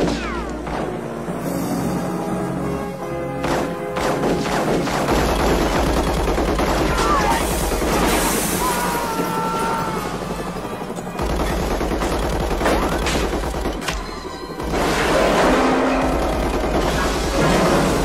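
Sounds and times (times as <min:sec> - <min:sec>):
machine-gun fire: 0:03.6 - 0:08.5, 0:11.2 - 0:18.0.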